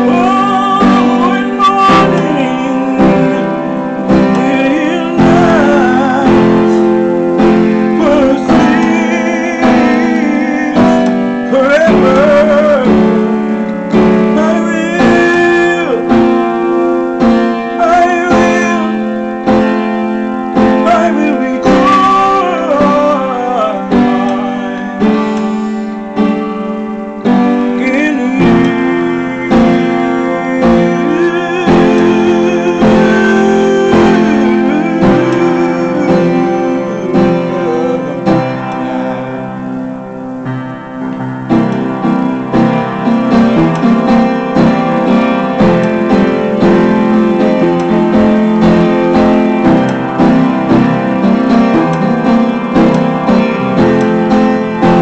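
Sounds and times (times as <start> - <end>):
wordless singing: 0.0 - 16.6, 17.7 - 19.3, 20.7 - 26.1, 27.2 - 39.7
piano chords: 0.0 - 55.0.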